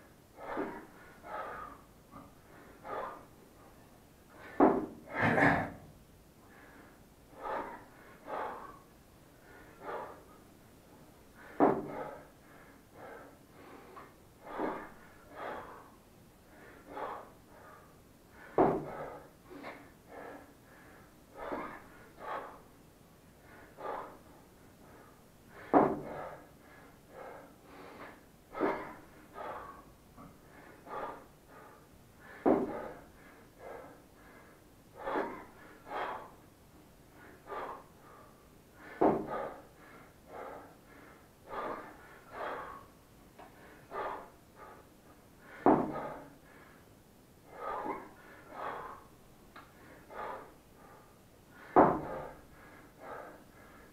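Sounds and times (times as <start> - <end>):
man breathing hard: 0.0 - 53.9.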